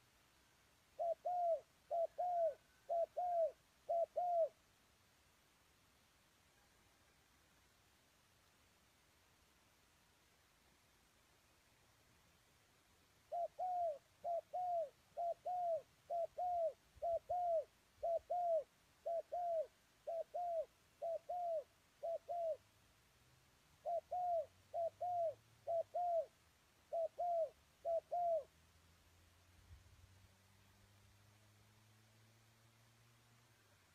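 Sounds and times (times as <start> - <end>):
dove cooing: 1.0 - 4.6, 13.2 - 22.6, 23.8 - 28.5.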